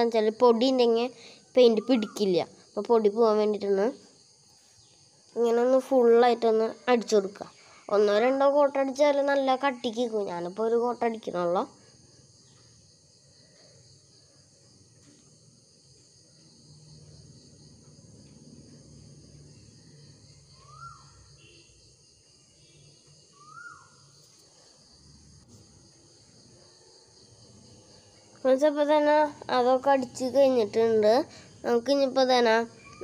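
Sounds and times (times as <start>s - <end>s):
crickets chirring: 0.0s - 33.0s
short bird calls: 20.6s - 21.6s, 23.4s - 24.1s.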